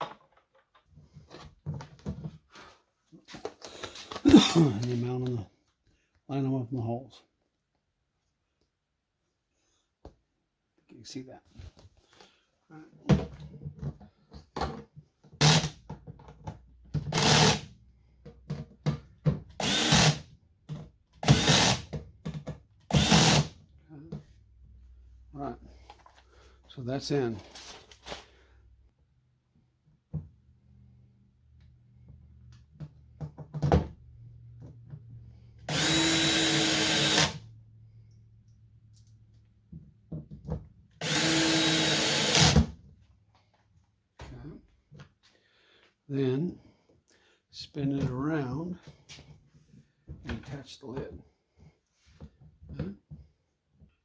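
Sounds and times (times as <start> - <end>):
cordless drill driving screws: 15.4 - 15.8, 17.1 - 17.7, 19.6 - 20.3, 21.2 - 21.9, 22.9 - 23.6, 35.7 - 37.4, 41.0 - 42.7.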